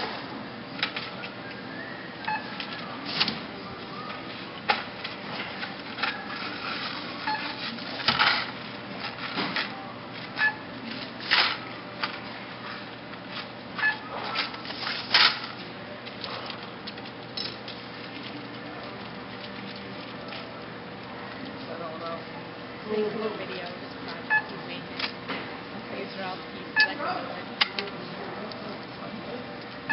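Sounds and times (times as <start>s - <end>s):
short scanner beeps: 2.2s - 2.6s, 7.2s - 7.5s, 24.3s - 24.5s, 26.8s - 27.0s
packages rustling and clicking: 14.2s - 20.6s.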